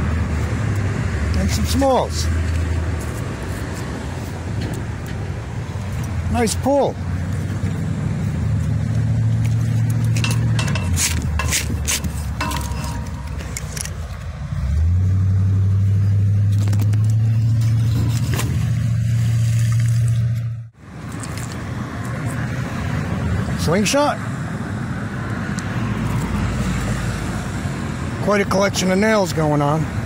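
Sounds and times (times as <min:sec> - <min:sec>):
vehicle engine drone: 0:00.0 - 0:28.3
metal pieces scraping on concrete: 0:10.1 - 0:14.0.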